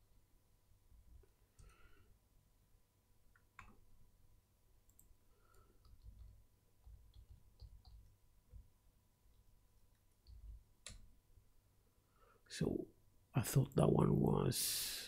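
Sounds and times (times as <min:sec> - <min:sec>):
faint steady hum: 0:00.0 - 0:15.0
keyboard and mouse clicks: 0:03.3 - 0:03.8, 0:04.9 - 0:08.7, 0:09.3 - 0:11.1.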